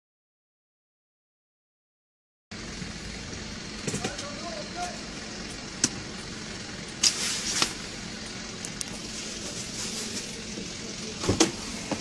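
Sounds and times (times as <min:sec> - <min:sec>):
car cabin hum and road noise: 0:02.5 - 0:12.0
short hissing rustle: 0:07.0 - 0:07.8.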